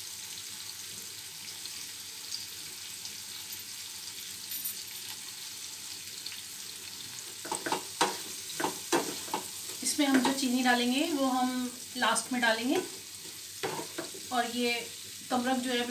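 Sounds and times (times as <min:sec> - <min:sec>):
fruit sizzling in oil: 0:00.0 - 0:15.9
spoon scraping and knocking pan: 0:07.4 - 0:10.5, 0:12.8 - 0:14.3.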